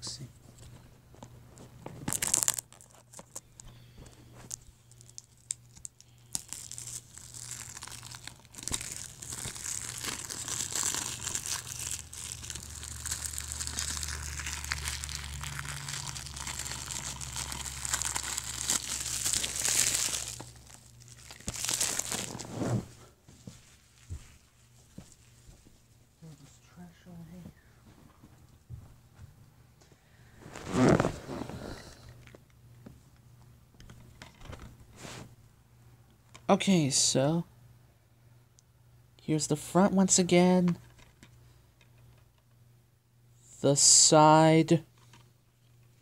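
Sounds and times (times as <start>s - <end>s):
plastic shrink wrap crinkling: 1.6s - 25.8s, 30.4s - 31.5s
plastic wrap ripping: 2.0s - 3.4s, 4.5s - 22.8s, 30.5s - 31.5s.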